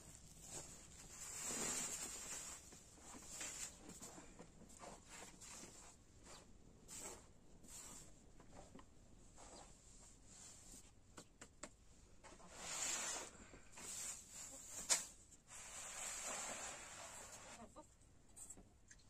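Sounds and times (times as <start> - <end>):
hands rustling through dry flour: 0.0 - 8.2.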